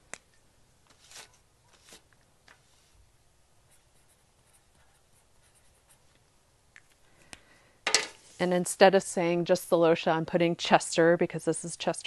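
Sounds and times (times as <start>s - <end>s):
marker scratching on label: 3.7s - 6.1s.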